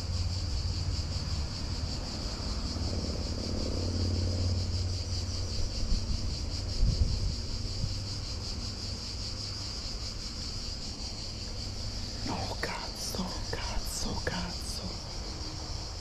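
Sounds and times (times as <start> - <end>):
high insect chorus: 0.0 - 16.0
wind rumbling on microphone: 1.6 - 8.5.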